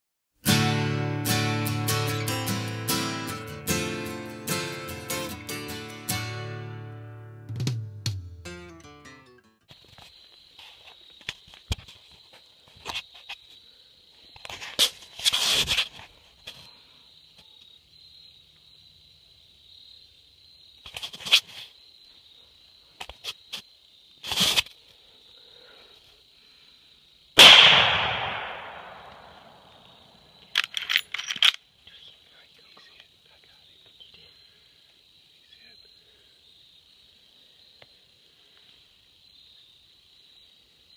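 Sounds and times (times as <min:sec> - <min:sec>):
rifle shot echoing: 0:27.4 - 0:29.9.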